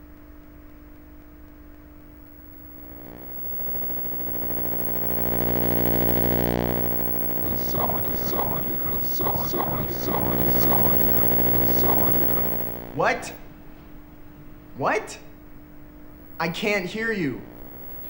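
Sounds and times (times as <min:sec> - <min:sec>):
electronic glitching hum: 0:02.6 - 0:13.4, 0:17.0 - 0:18.0
distorted garbled voice: 0:07.0 - 0:13.4.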